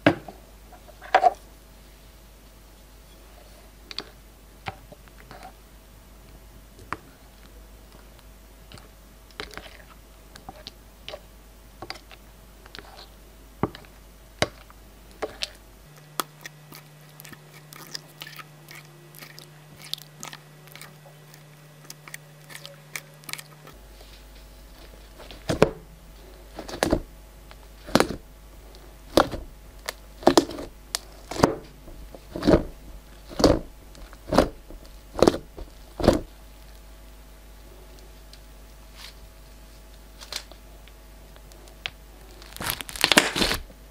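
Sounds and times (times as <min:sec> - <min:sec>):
fingers poking slime: 0:27.8 - 0:28.2, 0:29.1 - 0:30.7
plastic tool scraping glass: 0:30.3 - 0:31.5, 0:32.1 - 0:36.3.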